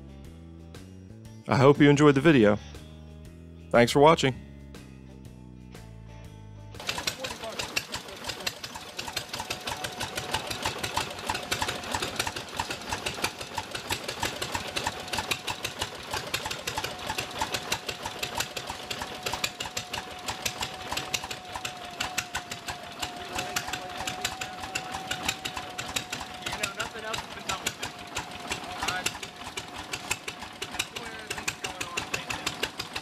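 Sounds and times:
rapid even clicking: 6.8s - 33.0s
stationary engine running: 6.8s - 33.0s.

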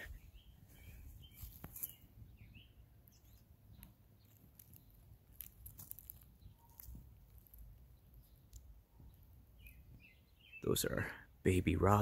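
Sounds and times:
faint bird chirps: 0.0s - 5.1s, 5.7s - 11.4s
branches rustling and crackling: 0.6s - 2.2s, 3.1s - 10.0s.

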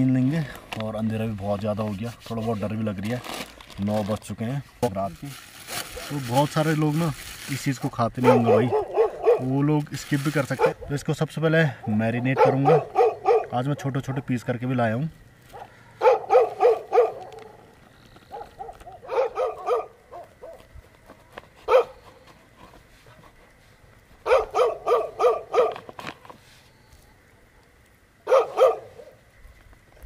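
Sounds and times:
dog barking: 8.2s - 9.6s, 10.5s - 10.9s, 11.8s - 14.3s, 15.5s - 17.6s, 18.3s - 20.7s, 21.6s - 22.2s, 24.2s - 25.9s, 28.2s - 29.2s.

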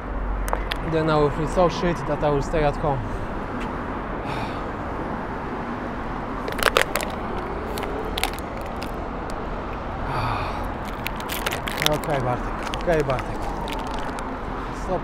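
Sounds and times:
city traffic: 0.0s - 15.0s
plastic bottle crackling: 6.4s - 9.4s, 10.7s - 14.5s.

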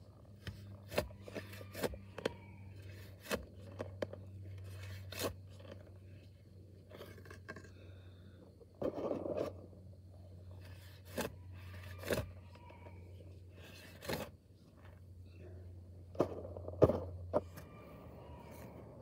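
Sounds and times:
steady low hum: 0.0s - 19.0s
shovel digging into clay soil: 10.6s - 12.3s.

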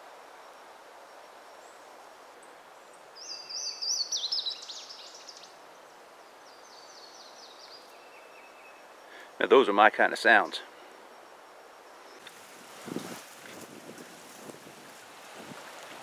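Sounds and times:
steady outdoor hiss: 0.0s - 16.0s
songbird singing trilled notes: 3.2s - 5.6s, 6.5s - 9.0s.

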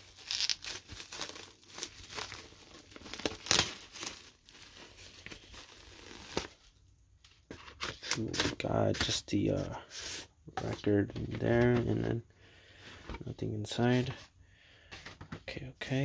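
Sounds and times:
plastic shrink wrap tearing: 0.0s - 6.5s.

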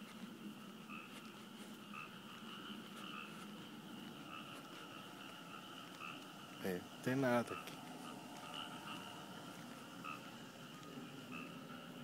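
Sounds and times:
frogs calling: 0.0s - 12.0s.

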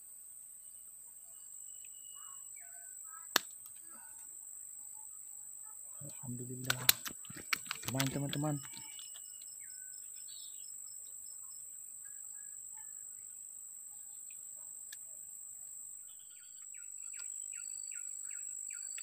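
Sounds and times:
high-pitched insect drone: 1.3s - 14.4s, 16.0s - 19.0s
bird chirping: 5.0s - 13.4s, 16.0s - 19.0s.

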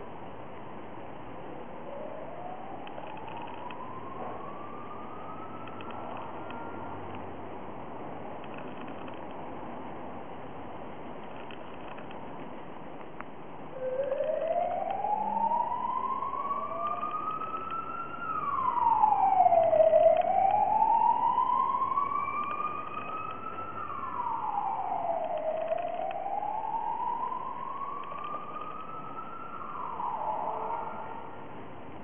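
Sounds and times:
siren wailing: 1.8s - 7.1s, 13.7s - 31.5s.

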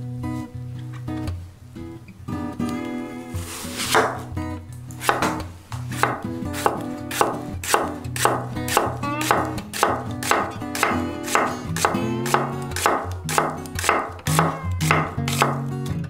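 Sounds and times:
knife slicing onion on wooden board: 3.4s - 4.3s, 4.9s - 15.7s.

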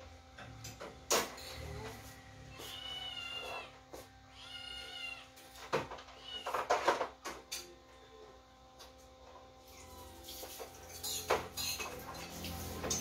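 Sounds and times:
high-pitched animal cries: 2.5s - 5.4s, 6.1s - 6.7s.

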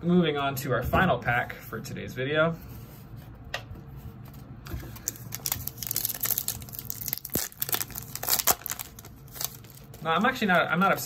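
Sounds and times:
foil wrapper crinkling: 5.0s - 10.5s.

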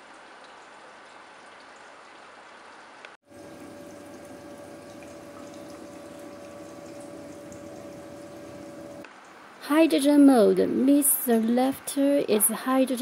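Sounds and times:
machine bubbling and trickling: 3.2s - 9.1s
steady machine hum: 3.2s - 9.1s.

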